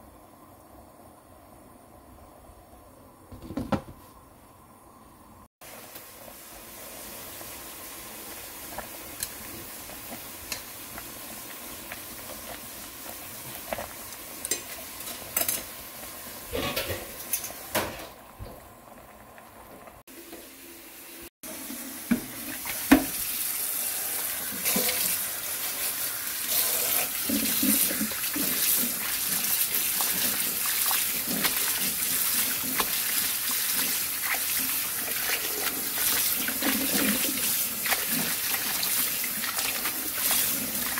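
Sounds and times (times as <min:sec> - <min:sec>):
tap water running: 0:05.6 - 0:40.9
water splashing: 0:26.7 - 0:40.9.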